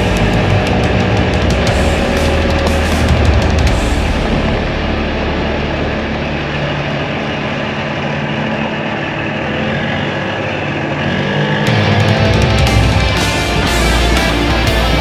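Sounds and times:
tyres on gravel road: 0:00.0 - 0:15.0.

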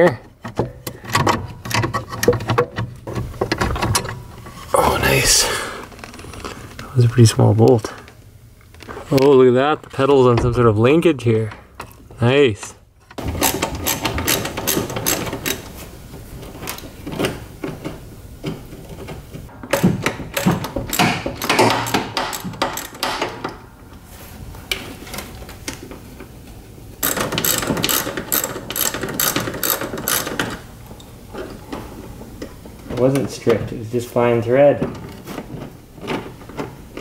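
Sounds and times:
ratchet wrench clicking: 0:27.0 - 0:30.5.

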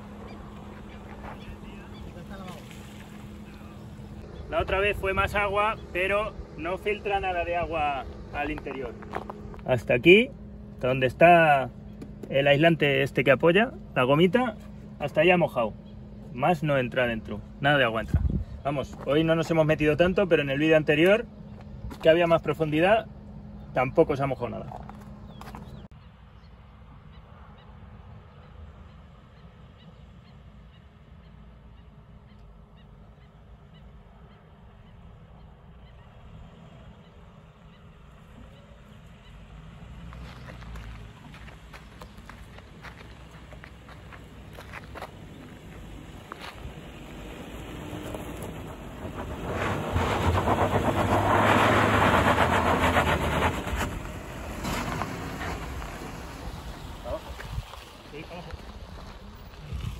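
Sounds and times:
tyres scrabbling and spraying dirt: 0:00.0 - 0:23.0, 0:35.9 - 0:59.9
steady low rumble: 0:00.0 - 0:25.9
birds calling: 0:00.0 - 0:49.2
car engine revving hard: 0:47.4 - 0:56.5.

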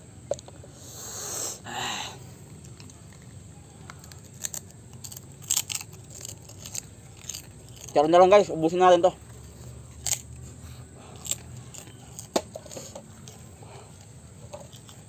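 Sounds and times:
person huffing breathily: 0:01.0 - 0:02.3
chewing with small clicks: 0:02.5 - 0:08.0, 0:11.1 - 0:12.3, 0:13.2 - 0:15.0.

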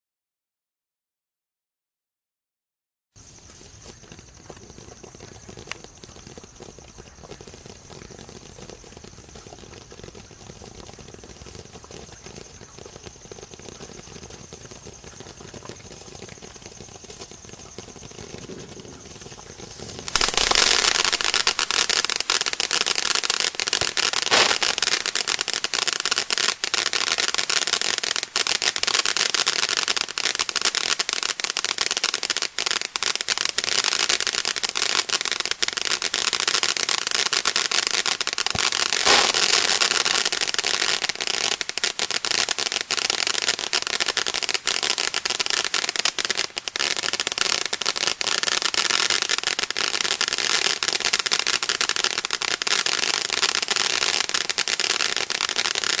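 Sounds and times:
firework fountain hissing and crackling: 0:03.2 - 0:56.0.

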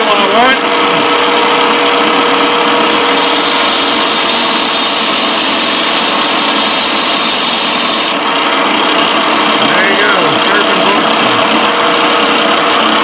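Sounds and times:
tile saw motor running: 0:00.0 - 0:13.0
high thin grinding hiss: 0:03.0 - 0:08.2.

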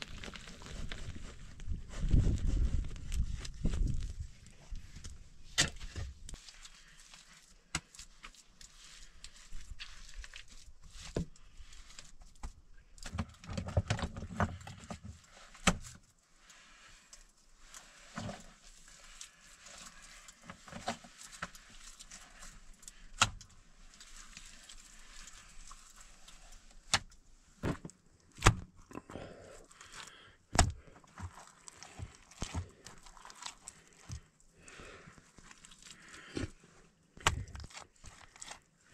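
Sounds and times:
stones knocking and scraping: 0:00.0 - 0:06.4, 0:26.5 - 0:28.8, 0:30.5 - 0:34.4, 0:35.3 - 0:38.7
rubble crunching: 0:00.0 - 0:15.0, 0:17.0 - 0:38.9.

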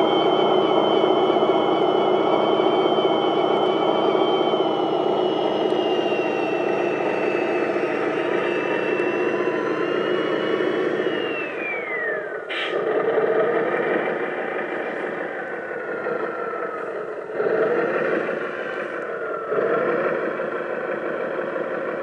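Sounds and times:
electric motor whining: 0:00.0 - 0:21.0.

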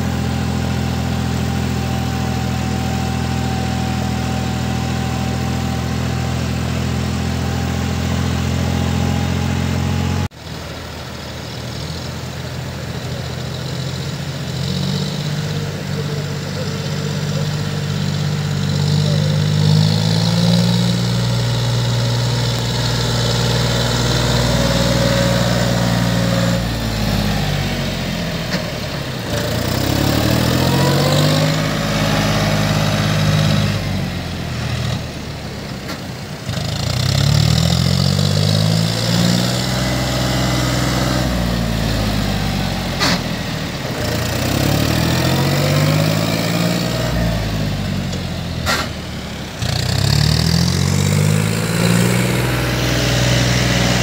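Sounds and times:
tractor engine revving: 0:00.0 - 0:54.0.

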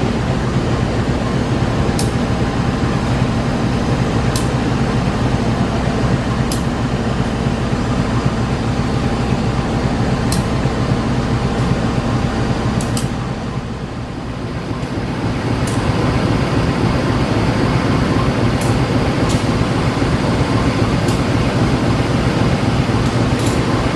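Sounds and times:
locomotive engine idling: 0:00.0 - 0:23.9
faint sharp high ticks: 0:10.3 - 0:10.5.

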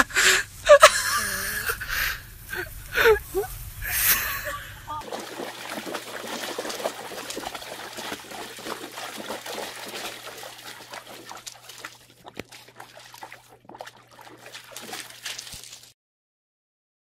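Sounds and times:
dog splashing in water: 0:05.0 - 0:16.0.

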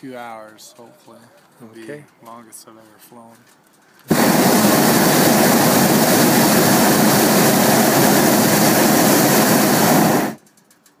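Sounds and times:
propane burner roaring: 0:04.1 - 0:10.8.

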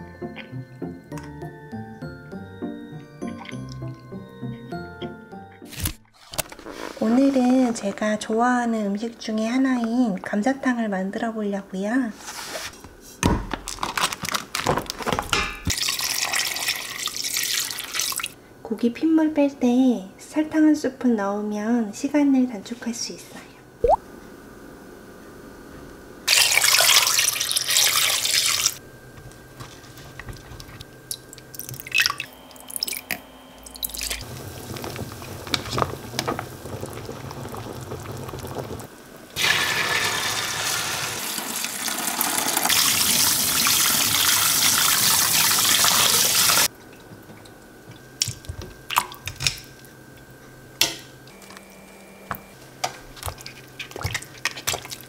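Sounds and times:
water rushing into sink: 0:26.3 - 0:28.8, 0:33.8 - 0:46.7.

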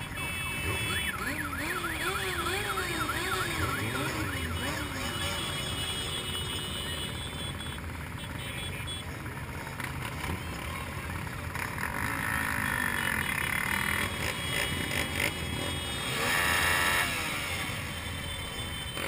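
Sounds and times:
motorcycle engines idling: 0:00.0 - 0:19.0.

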